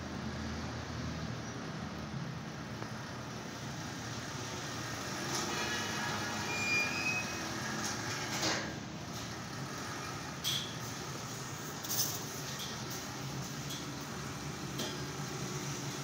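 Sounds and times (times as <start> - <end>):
high squeak: 6.3 - 7.6.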